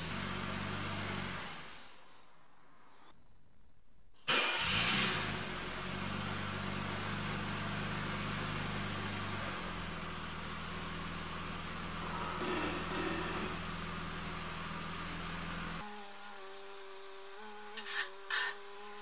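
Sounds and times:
car engine starting and idling: 4.3 - 12.5.

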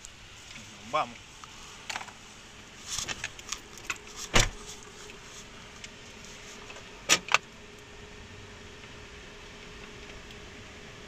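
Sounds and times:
faint steady hum: 0.0 - 11.0
heavy thump: 4.3 - 4.7.

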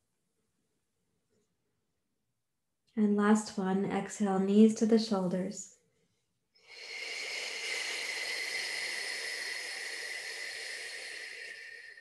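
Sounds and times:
person exhaling slowly: 6.6 - 12.0.

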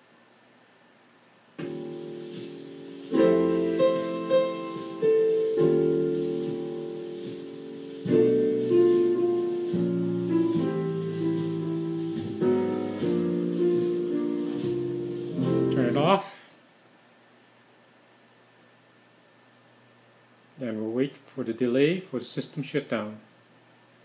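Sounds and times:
piano music: 1.6 - 16.2.

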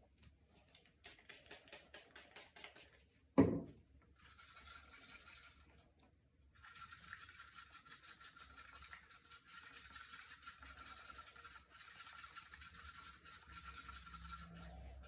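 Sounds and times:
scratchy rubbing strokes: 4.2 - 5.8, 6.6 - 15.0.

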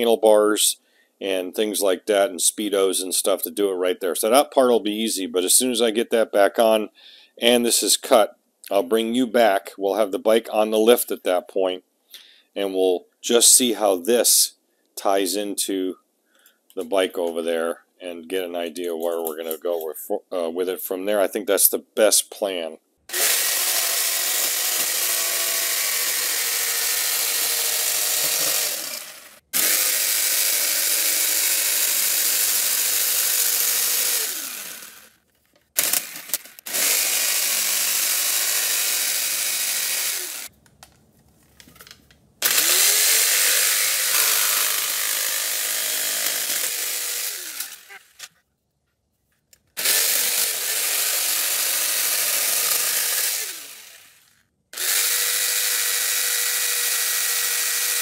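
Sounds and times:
jigsaw cutting plastic: 23.1 - 40.5, 41.8 - 48.4, 49.8 - 58.0.

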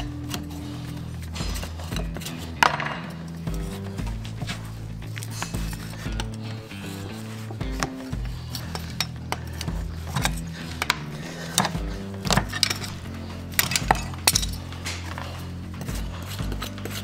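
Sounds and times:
background music with steady beat: 0.0 - 17.0
metal pincers clinking on horseshoe: 7.8 - 15.2.

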